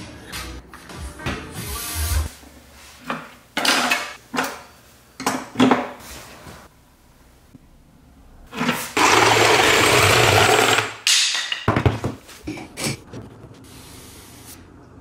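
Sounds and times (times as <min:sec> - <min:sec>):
power tool running: 0:09.0 - 0:11.0.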